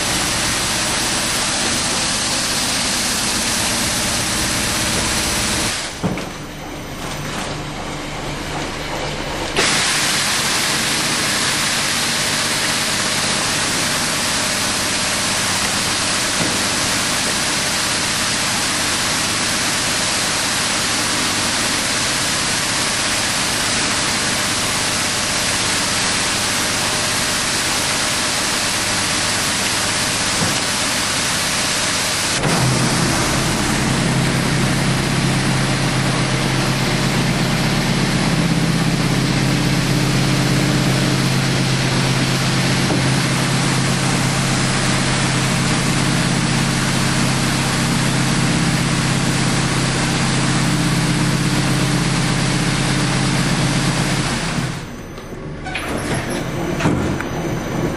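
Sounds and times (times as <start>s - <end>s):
packaging machine running: 0.0s - 57.9s
deep hum: 32.4s - 48.3s.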